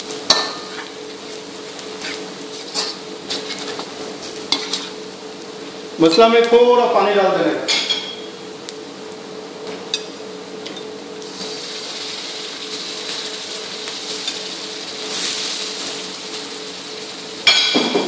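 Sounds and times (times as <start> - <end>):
water sizzling in a hot wok: 0.0 - 5.7, 11.1 - 18.0
steady mechanical hum: 0.0 - 18.0.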